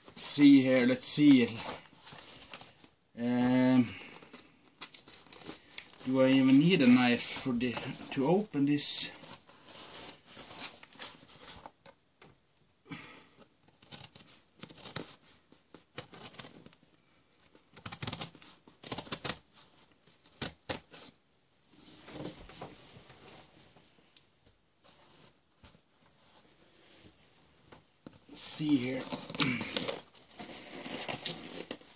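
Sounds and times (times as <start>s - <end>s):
tape tearing: 28.6s - 31.9s.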